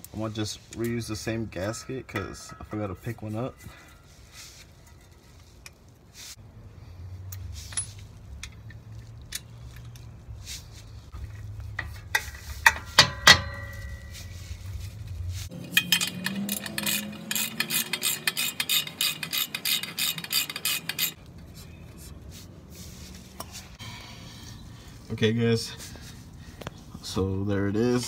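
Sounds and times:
metal tools clinking: 0.7s - 5.8s, 11.2s - 14.8s, 15.5s - 21.5s
ratchet wrench clicking: 15.5s - 21.2s.

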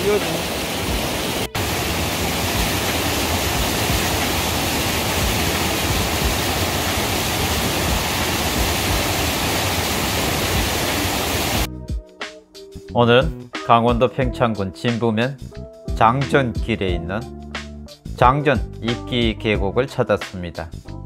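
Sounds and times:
stream rushing over boulders: 0.0s - 11.7s.

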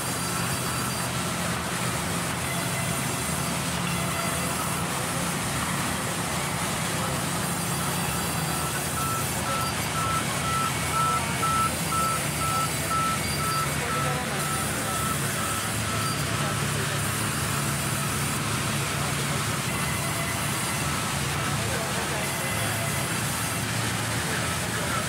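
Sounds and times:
forklift engine running: 0.0s - 25.0s
high warning beeps: 7.6s - 16.6s.

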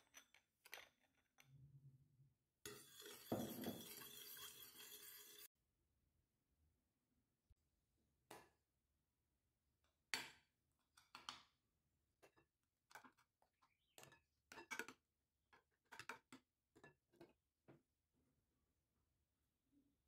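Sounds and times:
metal spoon scraping glass: 2.7s - 5.5s.

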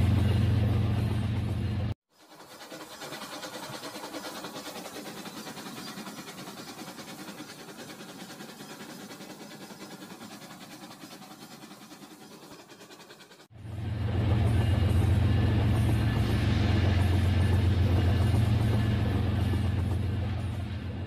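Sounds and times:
toy trains rattling on track: 2.1s - 13.5s.

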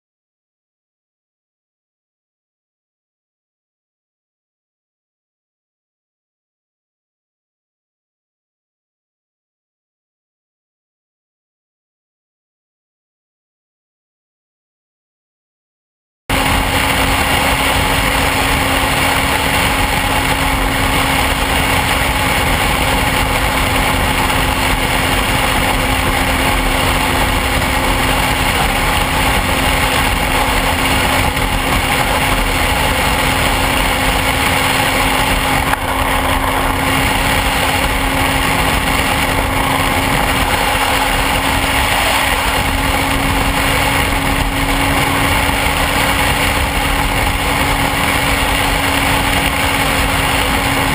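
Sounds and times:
motorcycle engine cruising: 16.3s - 50.9s
road rush: 16.3s - 50.9s
wind noise on microphone: 16.3s - 50.9s.

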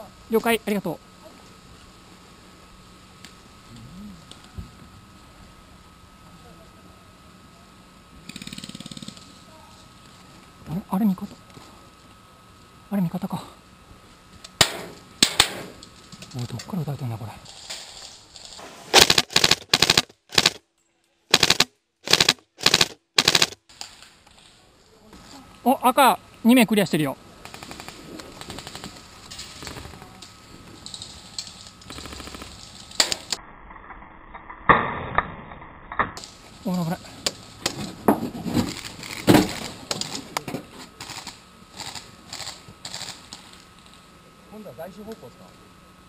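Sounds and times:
airsoft gun full-auto bursts: 18.9s - 20.6s, 21.3s - 23.6s, 31.9s - 32.6s
rustling leaves and gear: 36.3s - 44.2s.

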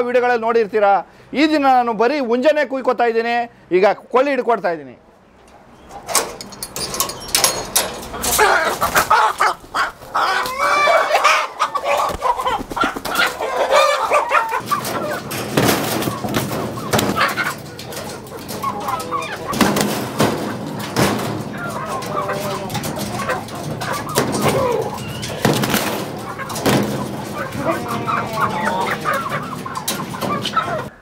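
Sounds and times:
chickens squawking and clucking: 5.1s - 6.2s, 7.1s - 31.0s
wings flapping: 8.2s - 31.0s.

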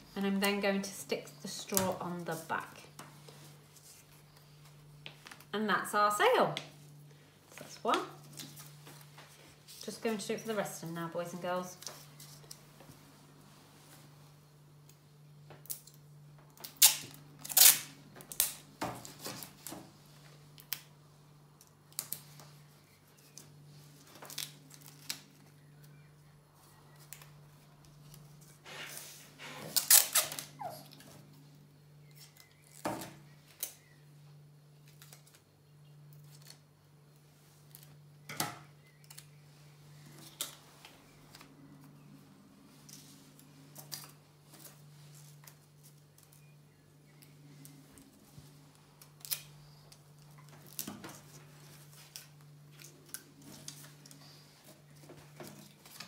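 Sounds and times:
low steady hum: 0.0s - 56.0s
sticky tape ripping: 16.6s - 19.7s, 28.7s - 30.6s.

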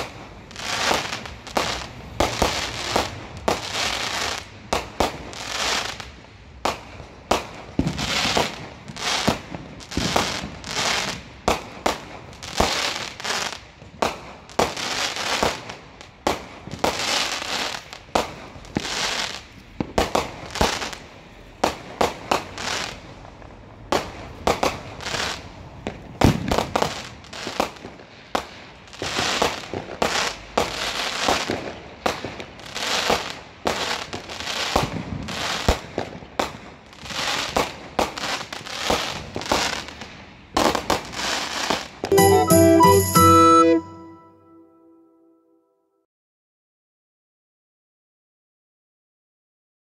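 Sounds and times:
fireworks bangs: 0.0s - 40.0s
fireworks crackling: 0.0s - 43.8s.

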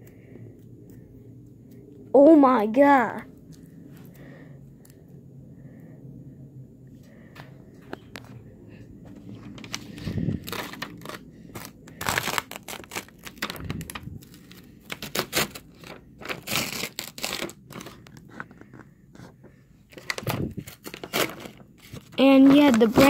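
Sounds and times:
adhesive tape tearing: 10.4s - 18.0s, 20.0s - 22.0s.

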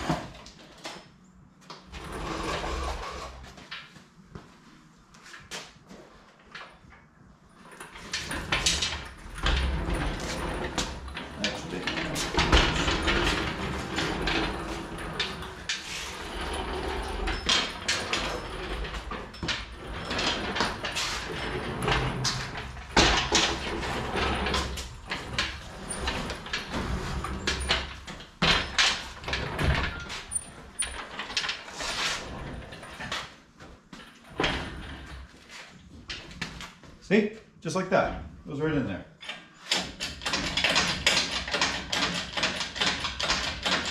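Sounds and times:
metal and wood knocks and clanks: 8.0s - 31.7s, 39.3s - 43.9s
engine hoist rolling rumble: 8.0s - 33.0s.

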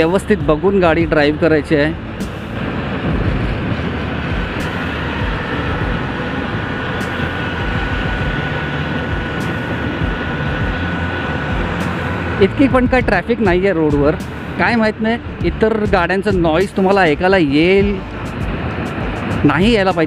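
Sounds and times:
road noise: 0.0s - 20.0s
scooter engine rumble: 0.0s - 20.0s
wind noise: 0.0s - 20.0s
person talking: 12.4s - 18.0s, 19.4s - 20.0s.

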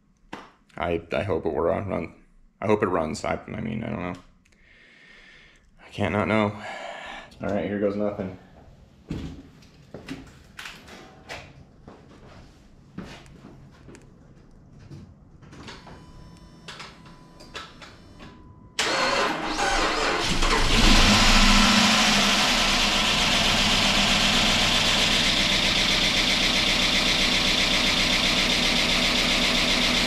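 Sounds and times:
car engine cranking and idling: 18.8s - 30.0s.

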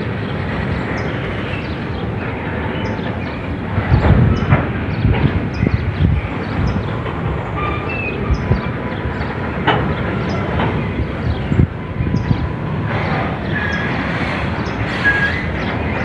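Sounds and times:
train wheels rumbling on rail: 0.0s - 16.0s
wagons knocking and clanking: 3.2s - 16.0s.

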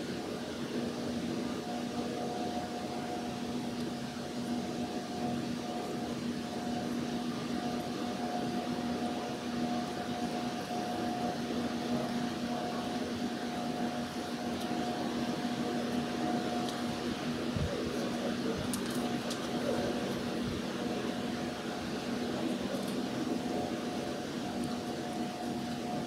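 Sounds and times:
constant two-tone hum: 0.0s - 26.0s
ship machinery drone: 0.0s - 26.0s.

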